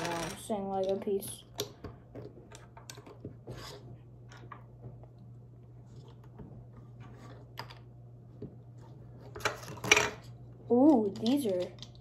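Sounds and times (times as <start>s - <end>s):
plastic pieces clicking and rattling: 0.0s - 1.8s, 10.8s - 12.0s.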